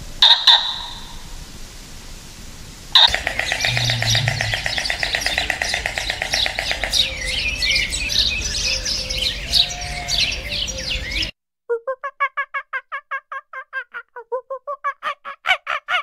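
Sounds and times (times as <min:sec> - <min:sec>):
small birds chirping: 0:03.0 - 0:11.3.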